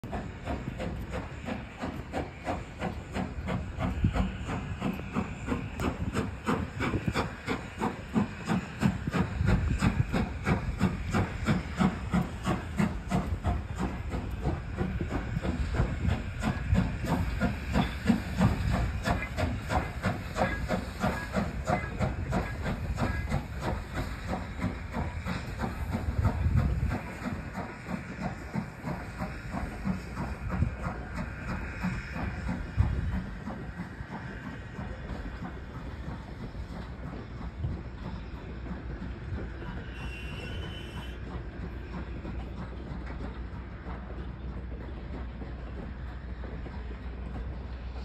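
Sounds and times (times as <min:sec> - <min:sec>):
steam hissing: 0:00.0 - 0:48.0
steam locomotive exhaust chuffs: 0:00.0 - 0:48.0.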